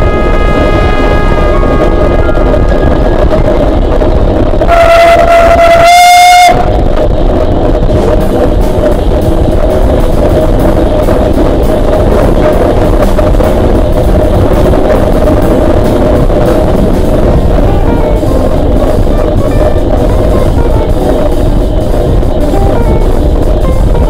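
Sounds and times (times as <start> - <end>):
steam locomotive whistle: 0.0 - 3.4, 4.7 - 6.8
background music with drums: 7.9 - 24.0.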